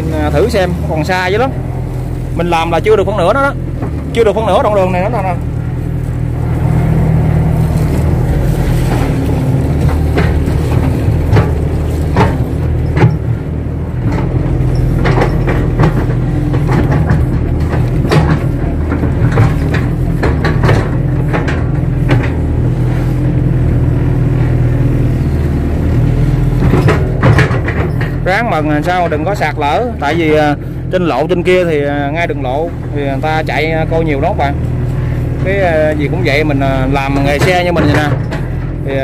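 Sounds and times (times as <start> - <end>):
excavator diesel engine running: 0.0 - 39.0
knocks and clunks of digging: 2.4 - 39.0.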